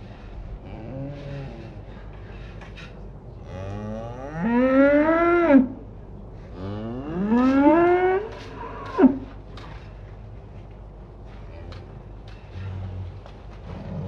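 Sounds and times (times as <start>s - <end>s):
cow mooing: 3.4s - 5.7s, 6.6s - 9.3s.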